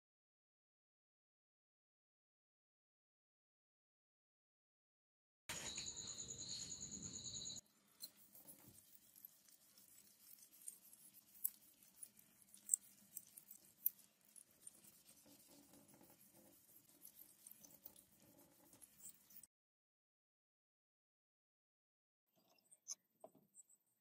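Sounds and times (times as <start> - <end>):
sandpaper scratching knife blade: 8.0 - 19.4.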